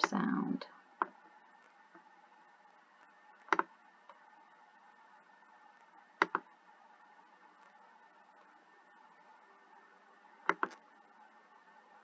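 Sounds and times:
faint steady hiss: 0:00.0 - 0:12.0
computer mouse clicks: 0:03.4 - 0:04.2, 0:06.2 - 0:06.5, 0:10.4 - 0:10.8.

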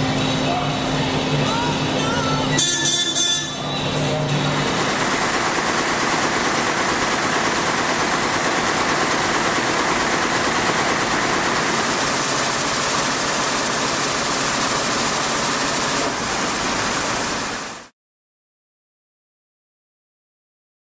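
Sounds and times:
weaving looms clattering: 0:04.7 - 0:17.6.

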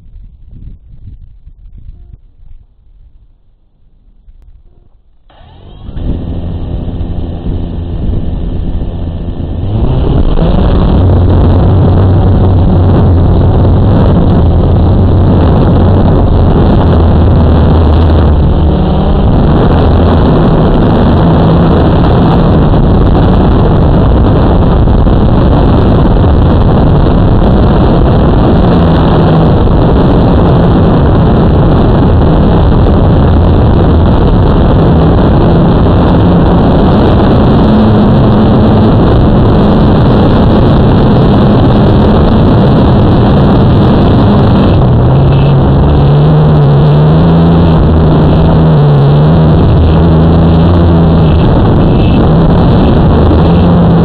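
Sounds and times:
quadcopter motors and propellers: 0:04.6 - 0:11.4.

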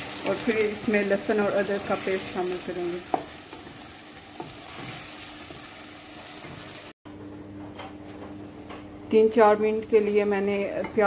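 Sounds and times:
onion paste sizzling in oil: 0:00.0 - 0:07.0
wooden spoon stirring and scraping: 0:01.8 - 0:05.7.

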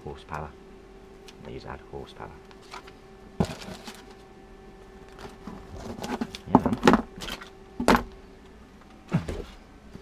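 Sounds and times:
cardboard and plastic rustling: 0:02.6 - 0:04.3, 0:05.0 - 0:08.1.

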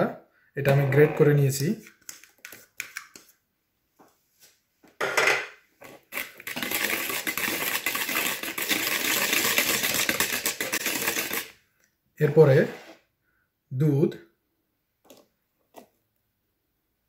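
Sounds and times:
whisk beating batter in bowl: 0:06.0 - 0:11.6.

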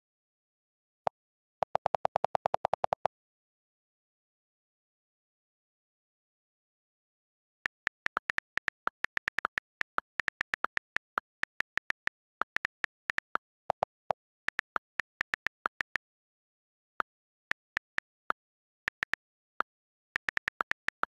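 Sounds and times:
on-screen keyboard clicks: 0:01.6 - 0:03.1, 0:07.6 - 0:16.0, 0:17.5 - 0:19.3, 0:20.2 - 0:21.0.

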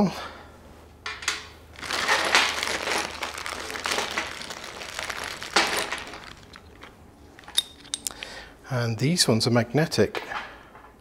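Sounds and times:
plastic bags crinkling: 0:01.7 - 0:08.2.

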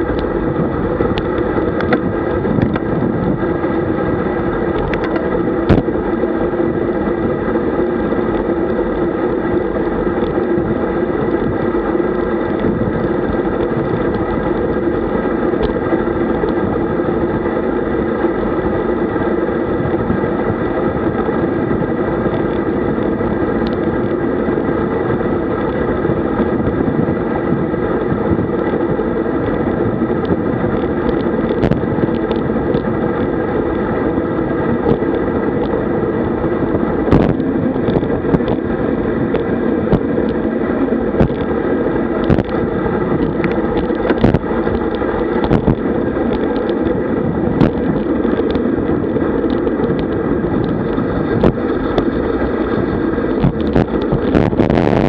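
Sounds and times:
bicycle tyre noise: 0:00.0 - 0:55.0
wind rush: 0:00.0 - 0:55.0
sharp clicks and knocks: 0:01.1 - 0:02.9, 0:04.7 - 0:05.9, 0:42.2 - 0:47.0.

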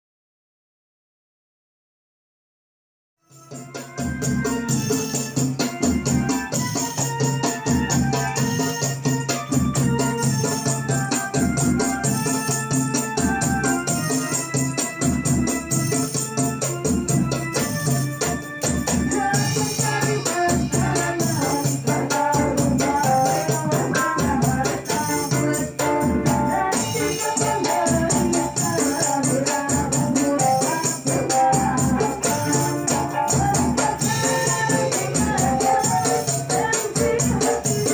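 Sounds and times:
electric keyboard organ melody: 0:03.3 - 0:37.9
tambourines and frame drums: 0:03.3 - 0:37.9
voices singing: 0:18.8 - 0:37.9.

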